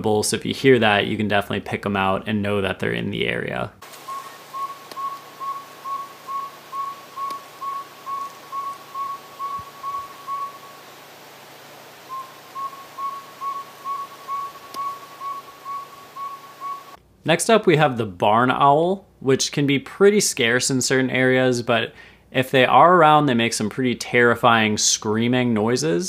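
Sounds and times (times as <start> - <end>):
owl tooting call: 4.0 - 11.0, 12.0 - 17.0.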